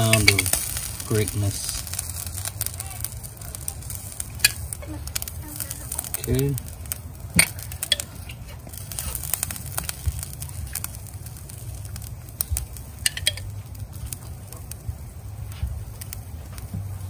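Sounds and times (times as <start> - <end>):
low steady rumble: 0.0 - 17.0
sauce sizzling and crackling: 0.0 - 17.0
small pops: 0.0 - 17.0.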